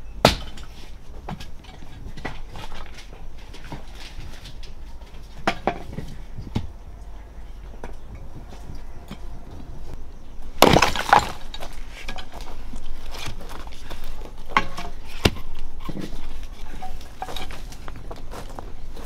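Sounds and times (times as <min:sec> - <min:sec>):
hoe scraping dry gravelly dirt: 0:08.3 - 0:19.0
log thudding on ground: 0:10.6 - 0:12.5.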